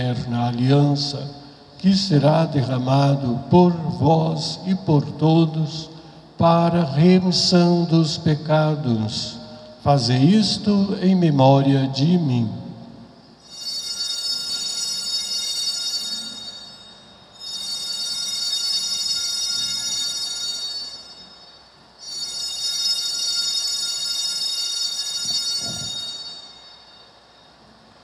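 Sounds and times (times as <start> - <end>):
bells shaken jingling: 13.4 - 27.4.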